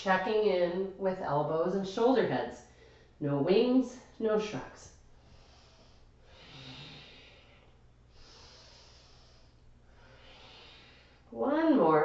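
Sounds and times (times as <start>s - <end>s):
woman breathing softly: 5.1s - 11.3s.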